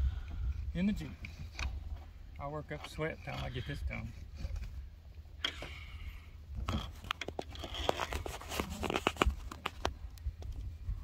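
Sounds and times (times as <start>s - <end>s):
objects being handled: 6.6s - 10.1s.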